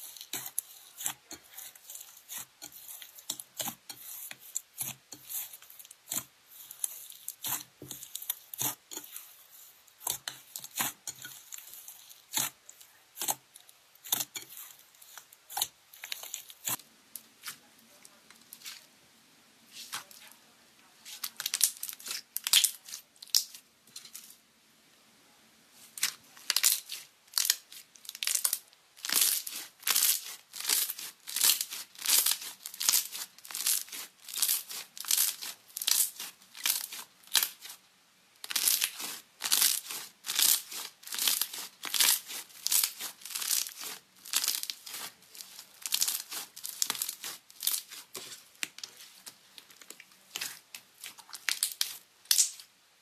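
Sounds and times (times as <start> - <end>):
slime crackling and popping: 21.2 - 23.6, 26.0 - 37.8, 38.4 - 52.7.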